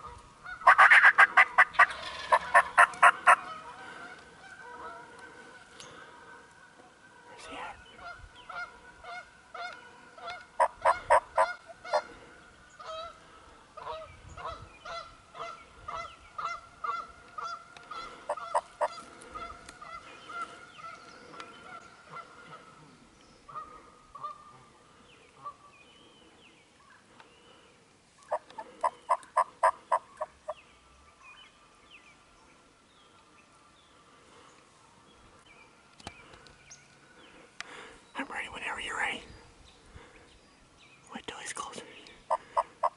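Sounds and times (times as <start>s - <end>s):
turkey yelps: 0.4s - 3.7s.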